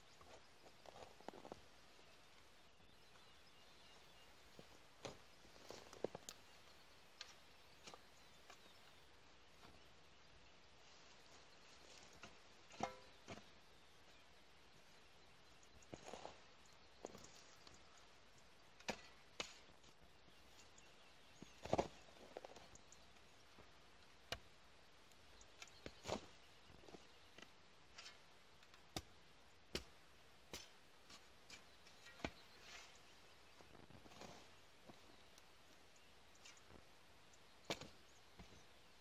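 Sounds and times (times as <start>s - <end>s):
hoe chopping into dry soil: 12.0s - 13.6s, 18.8s - 19.7s, 21.4s - 22.6s, 25.6s - 26.4s, 37.6s - 38.6s.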